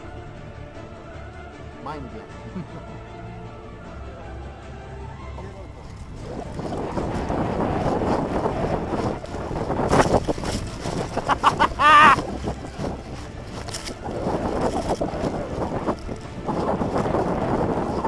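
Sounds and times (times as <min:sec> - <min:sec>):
wind buffeting microphone: 0:05.1 - 0:18.0
footsteps running through dry leaves: 0:05.6 - 0:18.0.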